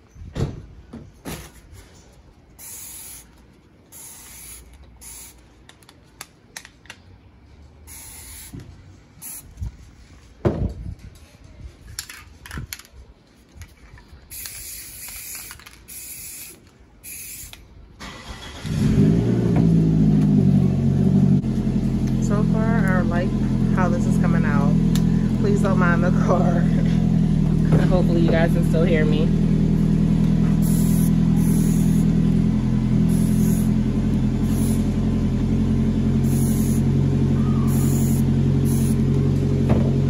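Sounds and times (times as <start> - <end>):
hissing spray bursts: 2.6 - 5.4, 7.9 - 8.6, 9.2 - 9.6, 14.3 - 17.5, 30.6 - 32.1, 33.1 - 33.7, 34.4 - 34.9, 36.2 - 36.9, 37.7 - 39.0
motor humming: 22.8 - 40.0.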